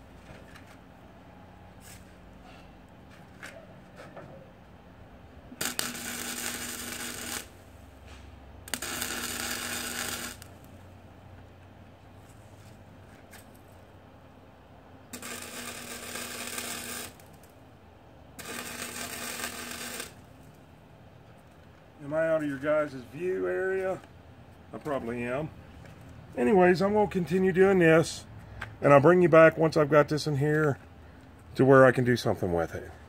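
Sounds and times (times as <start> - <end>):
electric arc welding crackle: 5.5 - 8.0, 8.7 - 10.8, 15.1 - 17.6, 18.4 - 20.5.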